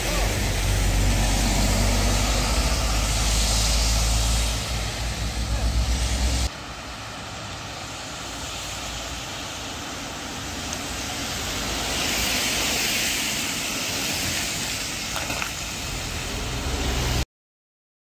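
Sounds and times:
vehicle passing: 0:00.0 - 0:06.5, 0:15.8 - 0:17.2
tyre hiss on wet road: 0:00.0 - 0:17.2.

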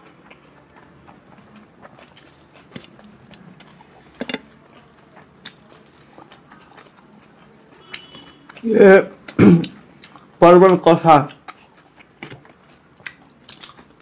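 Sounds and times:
eating clicks and taps on plates: 0:04.1 - 0:04.8.

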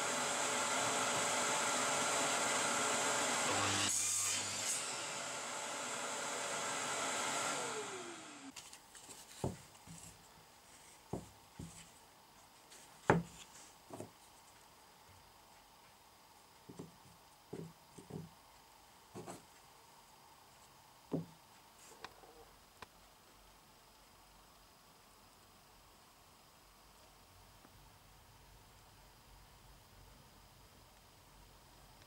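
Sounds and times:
power tool motor winding down: 0:00.0 - 0:08.5.

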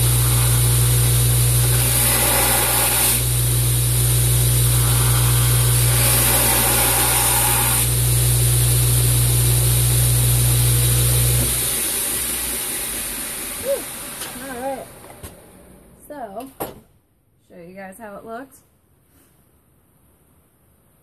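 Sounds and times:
steel grinding hiss: 0:00.0 - 0:08.0
belt winding down: 0:00.0 - 0:15.2
belt grinder motor hum: 0:00.0 - 0:15.7.

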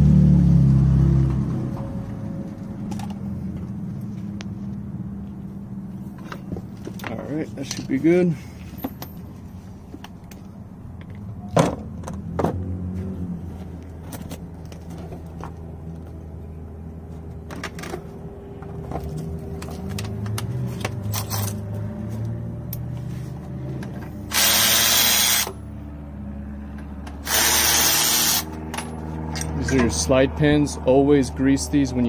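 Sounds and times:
electric ratchet spinning: 0:24.3 - 0:25.6, 0:27.2 - 0:28.6.

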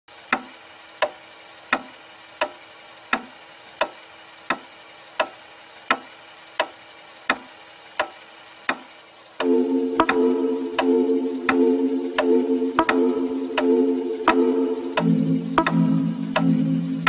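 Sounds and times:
clock-like ticking: 0:00.2 - 0:17.0
faint steady hum: 0:01.6 - 0:17.0.

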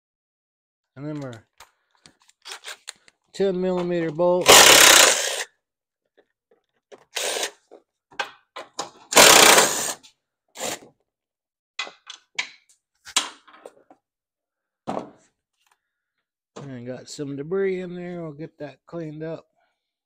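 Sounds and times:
hand tool noise bursts: 0:04.4 - 0:05.5, 0:07.1 - 0:07.6, 0:09.1 - 0:10.0, 0:10.6 - 0:10.9.

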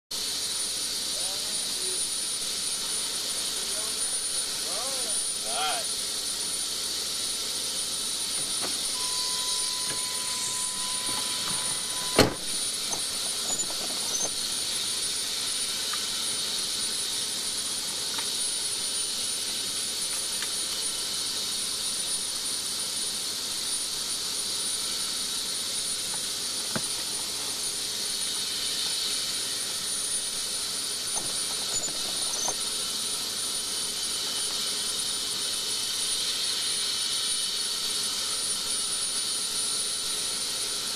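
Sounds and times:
steady high hiss: 0:00.2 - 0:40.9
thin high steady tone: 0:01.1 - 0:19.4.

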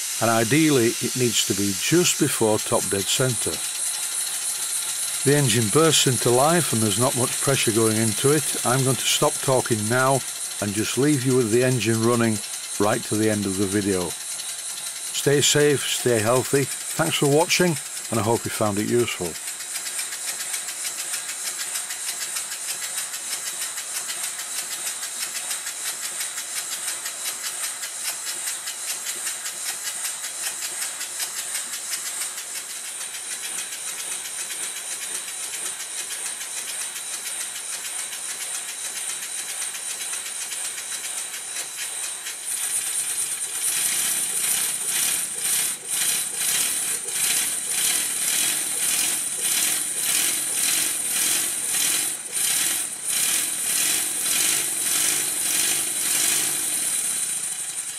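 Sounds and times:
hiss of escaping air: 0:00.0 - 0:10.8
model steam engine exhaust beats: 0:00.0 - 0:57.9.

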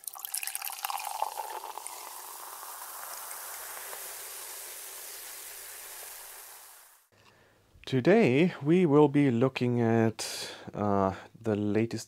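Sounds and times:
champagne pouring into glass: 0:00.0 - 0:07.0
fizz of bubbles: 0:00.0 - 0:07.1.

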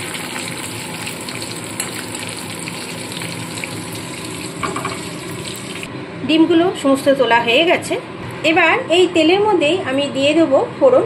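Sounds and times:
eggs sizzling in oil: 0:00.0 - 0:05.9.

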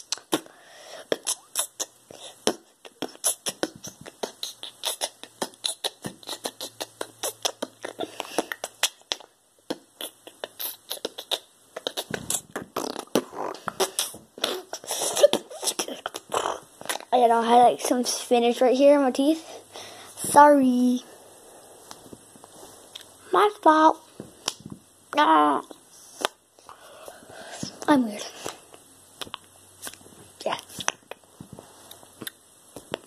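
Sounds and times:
boy beatboxing: 0:00.0 - 0:21.0, 0:27.5 - 0:31.6.

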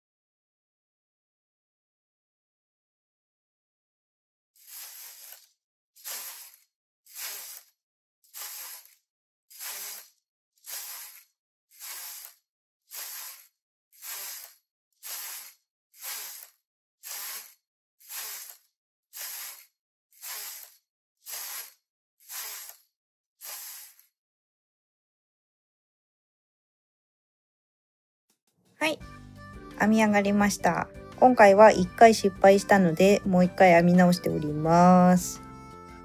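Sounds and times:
knitting machine carriage swishing: 0:04.6 - 0:24.1.

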